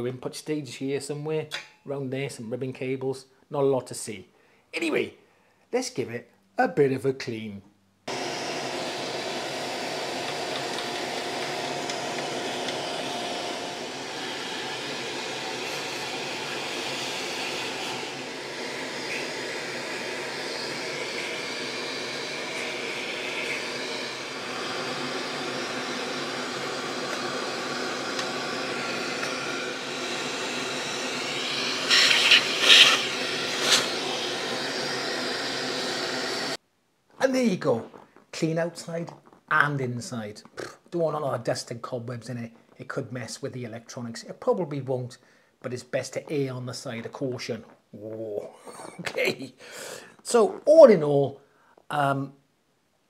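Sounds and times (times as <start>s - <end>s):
handheld vacuum cleaner running: 8.1s - 36.6s.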